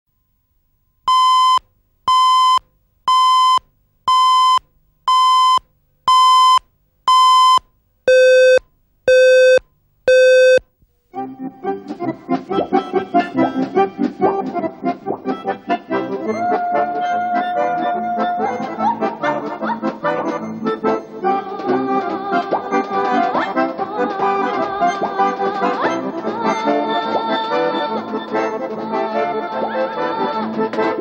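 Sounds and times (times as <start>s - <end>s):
short countdown beeps: 1.1s - 10.6s
accordion music: 11.2s - 31.0s.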